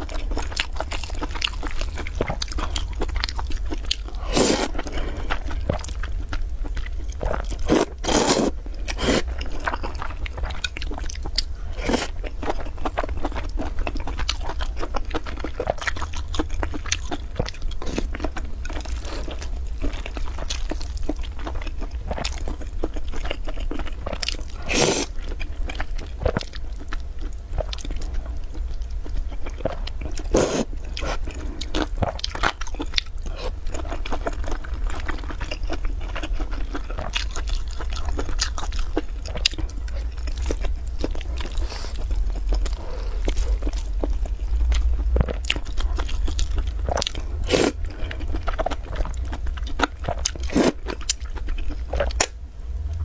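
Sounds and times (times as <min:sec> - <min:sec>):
low hum: 0:37.8 - 0:53.0.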